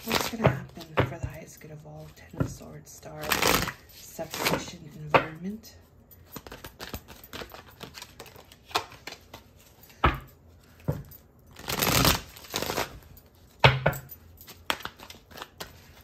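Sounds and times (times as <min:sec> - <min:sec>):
cards being shuffled: 0:00.0 - 0:01.2, 0:03.2 - 0:04.7, 0:06.3 - 0:09.9, 0:11.5 - 0:13.1, 0:14.5 - 0:16.0
cards rustling: 0:06.3 - 0:10.0, 0:11.5 - 0:13.5, 0:14.5 - 0:16.0.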